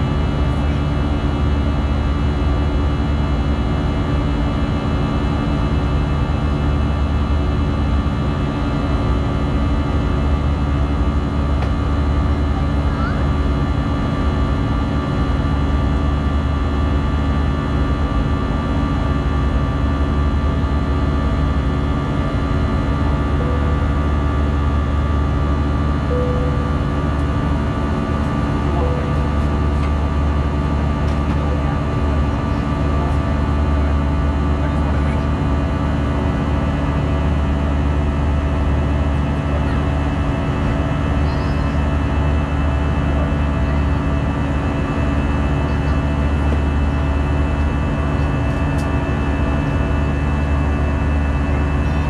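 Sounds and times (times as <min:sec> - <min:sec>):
airliner cabin engine drone: 0:00.0 - 0:52.0
steady whining tones: 0:19.8 - 0:52.0.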